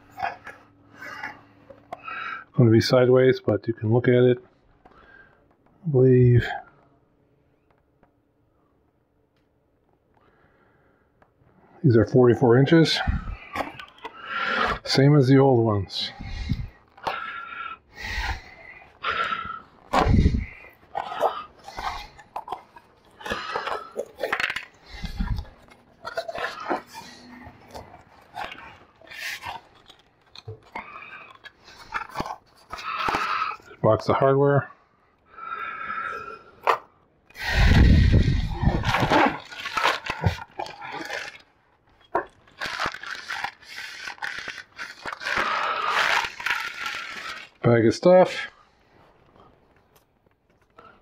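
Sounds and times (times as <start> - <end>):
plastic and cardboard crinkling: 12.9 - 34.1, 36.6 - 51.0
packaging rustling: 18.1 - 33.8, 36.6 - 47.6.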